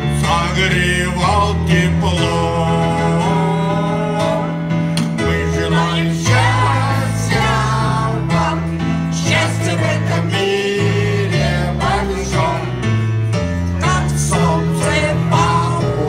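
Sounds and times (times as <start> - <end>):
instrumental accompaniment: 0.0 - 16.0
choir singing: 5.2 - 13.1, 13.7 - 16.0.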